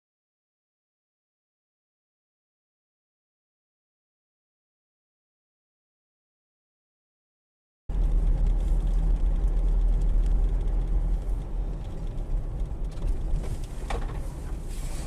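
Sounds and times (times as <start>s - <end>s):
car engine and tyres rumbling: 7.9s - 15.0s.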